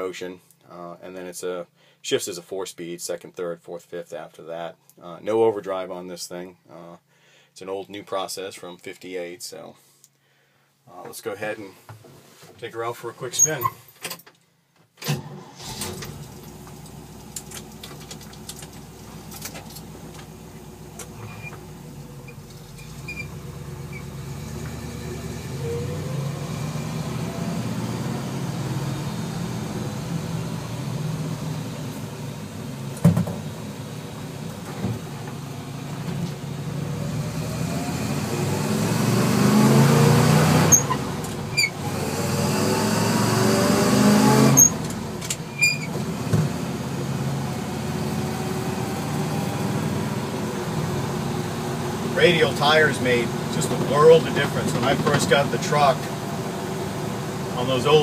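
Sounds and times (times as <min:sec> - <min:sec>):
truck engine accelerating: 0:15.2 - 0:58.0.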